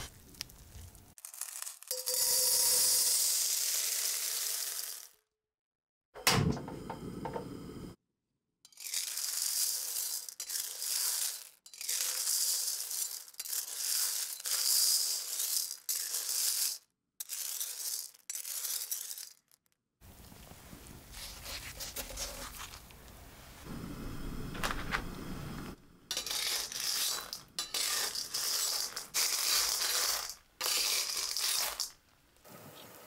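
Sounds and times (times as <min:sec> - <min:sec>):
stones rattling in a wok: 0:00.0 - 0:05.2, 0:08.7 - 0:20.2, 0:26.1 - 0:32.4.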